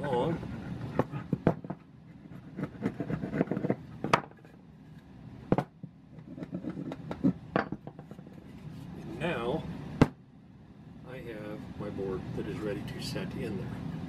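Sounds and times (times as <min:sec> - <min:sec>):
chisel scraping wood: 0:02.1 - 0:03.8.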